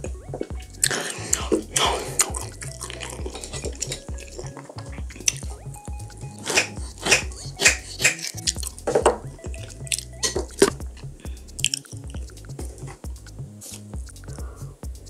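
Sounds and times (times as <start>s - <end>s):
background music: 0.0s - 15.0s
fork and knife clicking and scraping: 6.4s - 8.7s.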